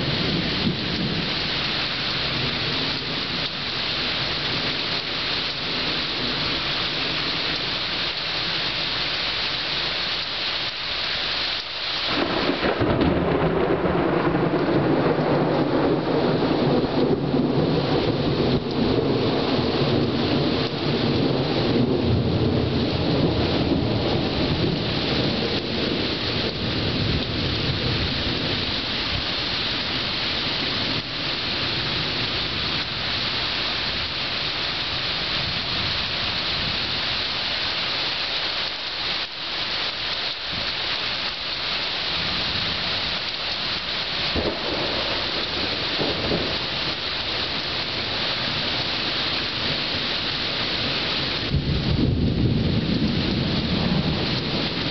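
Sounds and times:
thunder rumbling: 0.0s - 8.6s, 12.1s - 34.2s, 42.2s - 54.9s
heavy rain hissing: 0.0s - 54.9s.

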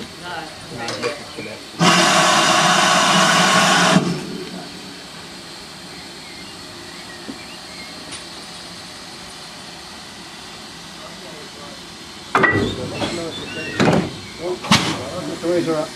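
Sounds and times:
loud steam hiss: 0.0s - 15.9s.

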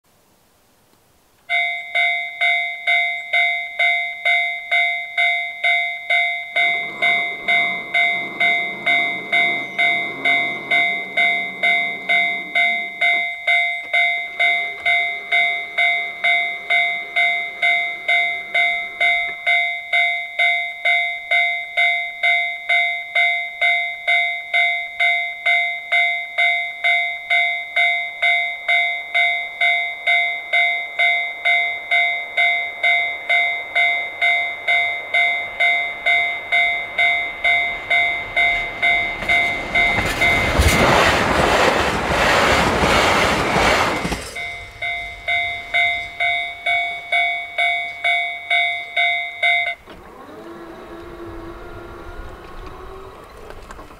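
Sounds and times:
level crossing warning bell: 1.5s - 53.9s
diesel train rushing past: 5.2s - 20.5s, 29.6s - 53.9s.

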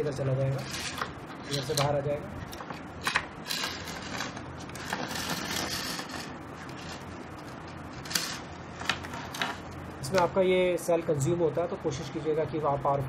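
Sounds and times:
battery rattling against wire coil: 0.3s - 10.4s.

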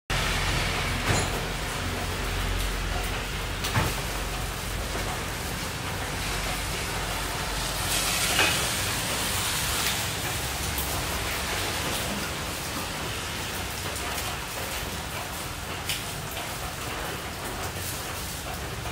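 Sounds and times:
kitchen background rush: 0.1s - 18.9s
utensils knocking and clattering: 0.9s - 1.9s.

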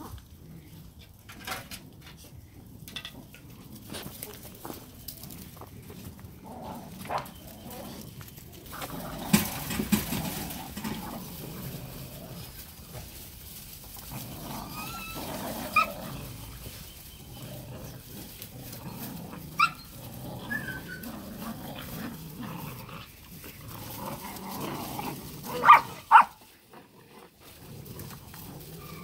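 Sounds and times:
puppies growling: 2.6s - 29.0s
puppies yelping: 14.0s - 26.5s.

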